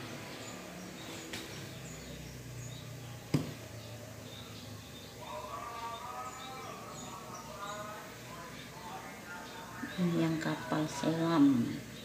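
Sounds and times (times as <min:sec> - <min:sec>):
plastic jug knocking on table: 0:03.3 - 0:03.6.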